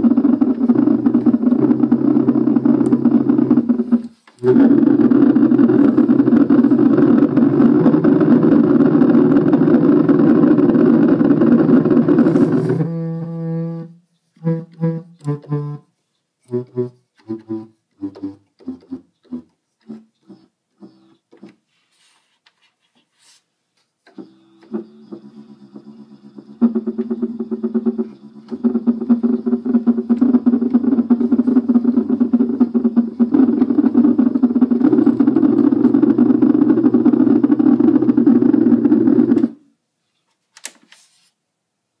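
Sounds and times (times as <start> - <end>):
electronic keyboard pulsing low notes: 0.0 - 15.8, 24.2 - 39.6.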